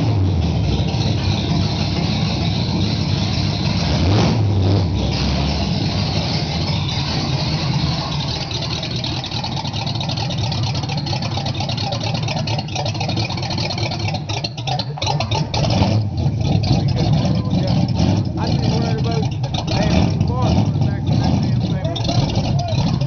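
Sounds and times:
car engine deep rumble: 0.0 - 23.0.

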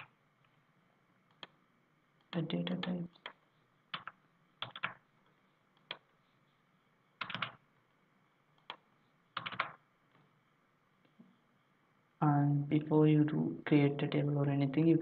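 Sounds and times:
typing on computer keyboard: 2.3 - 5.0, 7.2 - 7.6, 9.4 - 9.8.

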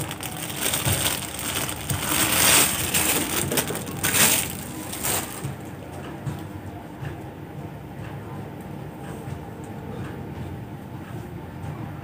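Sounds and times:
plastic wrapping crinkling: 0.0 - 5.7.

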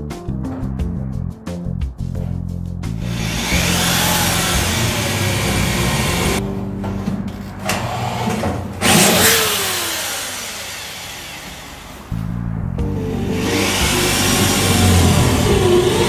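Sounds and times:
electric drill boring steel: 3.0 - 6.4, 7.8 - 12.1, 13.4 - 16.0.

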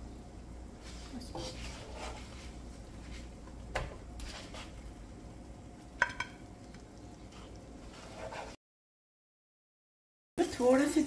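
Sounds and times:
low steady hum: 0.0 - 8.6.

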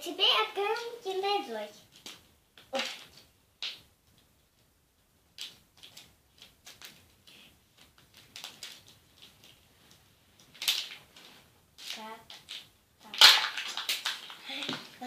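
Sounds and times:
plastic packaging crinkling: 8.0 - 9.7, 11.8 - 14.7.

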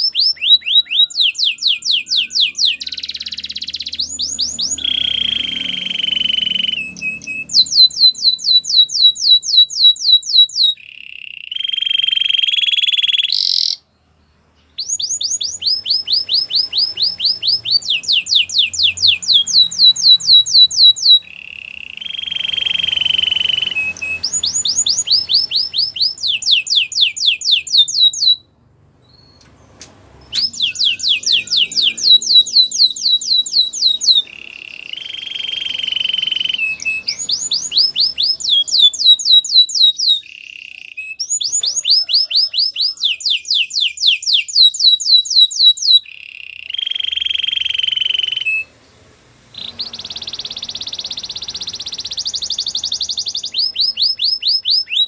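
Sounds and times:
canary singing: 0.0 - 55.0.

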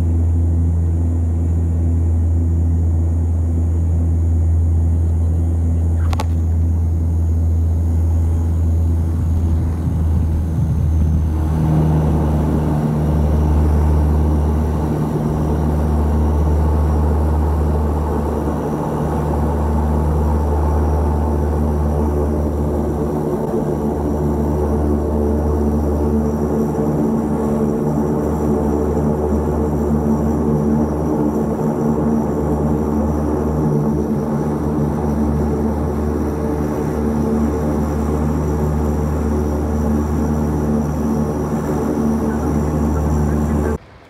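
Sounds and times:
propeller engine drone: 0.0 - 44.0
broad rushing noise: 34.6 - 44.0.

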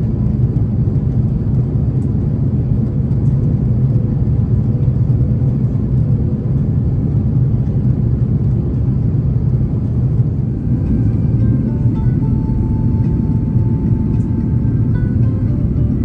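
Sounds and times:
airflow over fuselage: 0.0 - 16.0
airliner engines droning: 0.0 - 16.0.

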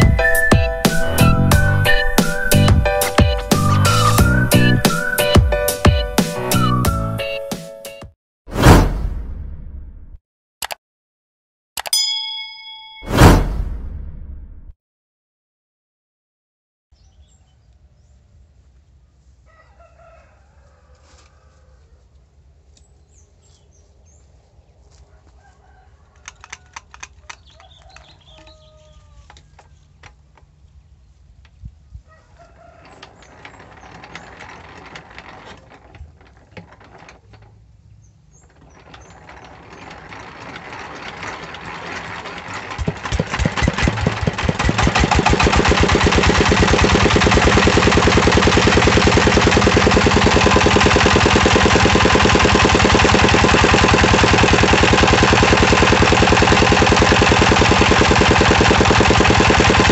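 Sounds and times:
diesel engine running: 0.0 - 5.2, 38.8 - 59.9
diesel engine whirring: 0.0 - 5.6, 33.0 - 59.9
rooster crowing: 19.4 - 22.1, 25.1 - 29.8, 32.1 - 33.2.

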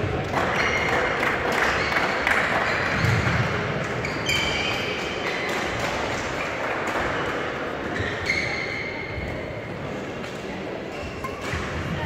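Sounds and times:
shoes squeaking on floor: 4.0 - 5.7, 7.8 - 9.4.

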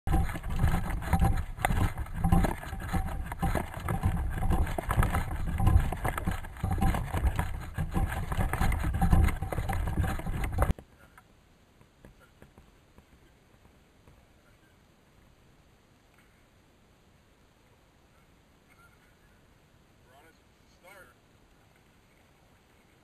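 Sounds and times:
crackles and knocks: 0.0 - 14.2.

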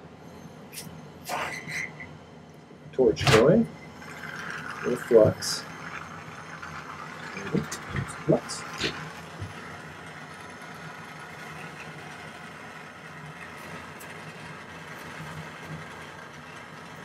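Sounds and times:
gas torch hissing: 3.0 - 12.2.

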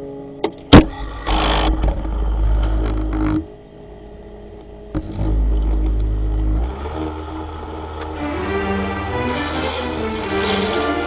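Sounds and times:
tailstock rumbling along lathe bed: 5.0 - 11.0.

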